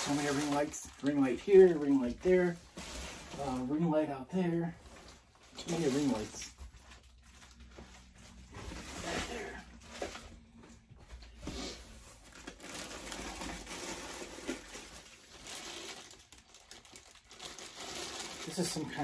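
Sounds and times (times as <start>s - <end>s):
plastic packaging rustling: 0.0s - 19.0s.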